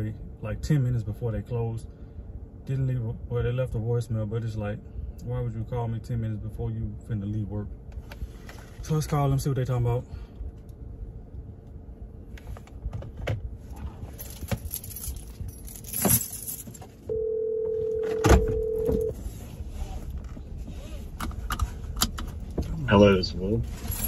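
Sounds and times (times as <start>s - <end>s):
phone ringback tone: 17.1s - 19.1s.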